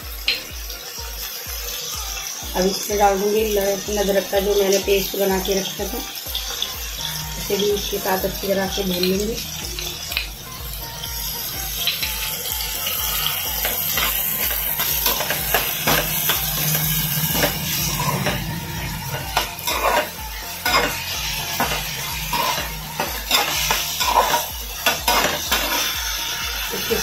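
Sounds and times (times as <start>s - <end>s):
vegetables sizzling in hot oil: 0.0s - 27.0s
metal ladle scraping a pan: 13.3s - 26.8s.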